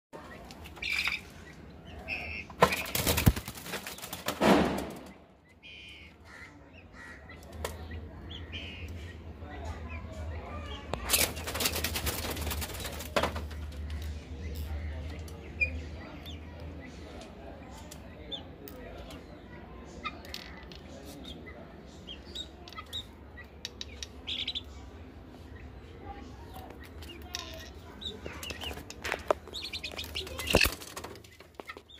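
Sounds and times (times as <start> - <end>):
sharp knocks and clatter: 4.2 - 5.2
guinea fowl chirping calls: 24.2 - 24.7, 28.0 - 30.8.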